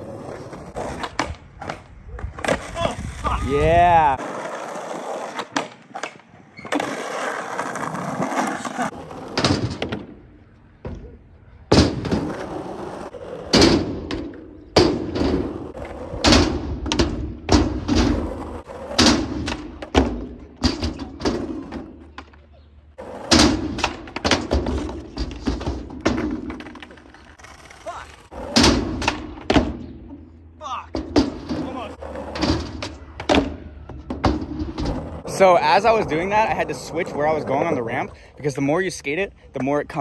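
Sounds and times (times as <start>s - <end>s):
skateboard wheels rolling on asphalt: 0.0s - 40.0s
skateboard banging on metal ramp: 9.2s - 11.1s, 11.7s - 22.4s, 23.0s - 27.0s, 28.3s - 30.3s, 30.9s - 35.2s.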